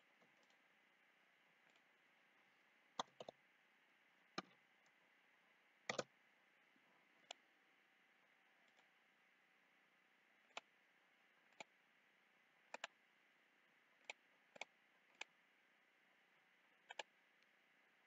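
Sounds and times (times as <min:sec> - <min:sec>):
computer mouse clicks: 0:03.0 - 0:03.4, 0:05.9 - 0:06.1, 0:08.6 - 0:08.9, 0:10.5 - 0:10.7, 0:11.5 - 0:11.7, 0:12.7 - 0:13.0, 0:14.0 - 0:15.3, 0:16.8 - 0:17.5.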